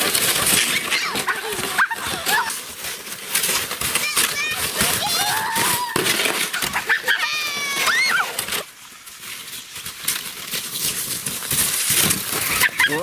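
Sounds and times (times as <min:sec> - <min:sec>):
sleds sliding over snow: 0:00.0 - 0:13.0
child squealing: 0:04.0 - 0:06.0, 0:06.7 - 0:08.4.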